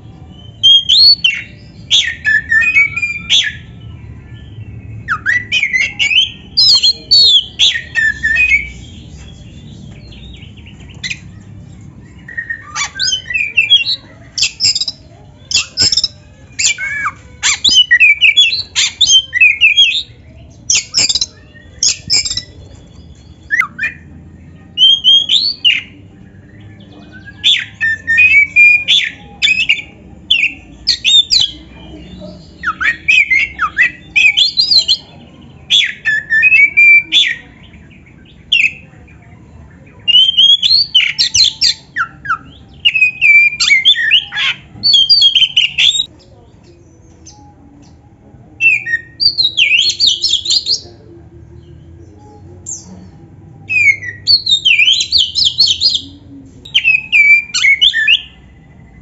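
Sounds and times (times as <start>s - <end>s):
bird singing whistled phrases: 0.4s - 3.7s, 5.0s - 8.8s, 20.7s - 24.0s, 32.5s - 35.0s, 40.0s - 46.1s, 48.6s - 50.8s, 53.7s - 58.4s.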